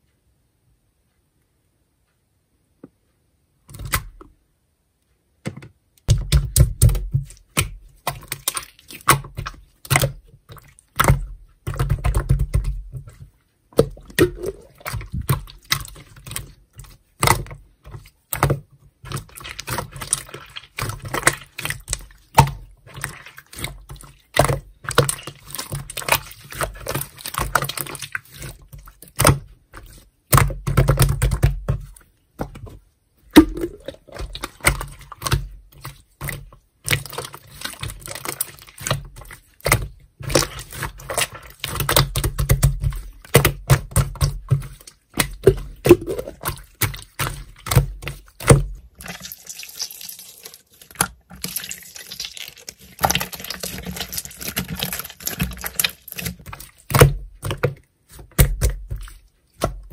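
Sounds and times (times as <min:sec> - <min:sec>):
low rumble of pressed slime: 0:06.0 - 0:49.3, 0:50.8 - 0:59.9.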